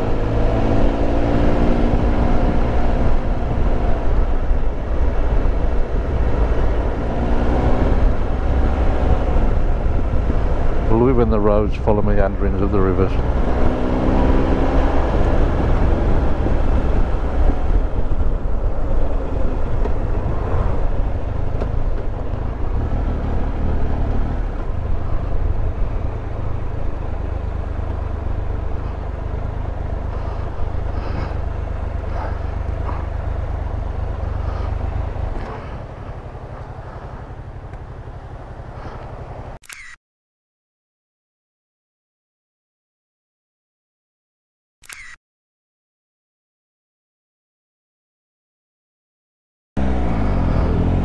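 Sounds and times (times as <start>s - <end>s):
motorcycle engine revving: 0.0s - 39.6s, 49.8s - 51.0s
road rush: 0.0s - 39.9s, 49.8s - 51.0s
wind on microphone: 13.2s - 29.0s.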